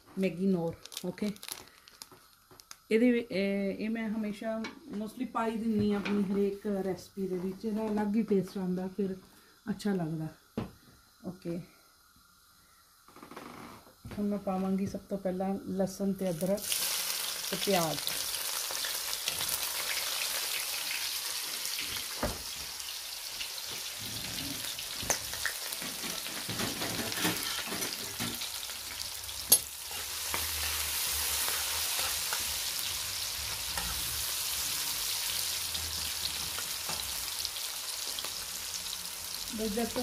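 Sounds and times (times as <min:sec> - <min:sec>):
onions sizzling in hot oil: 0:12.0 - 0:12.6, 0:14.2 - 0:40.0
utensils clinking on metal pan: 0:25.1 - 0:28.5.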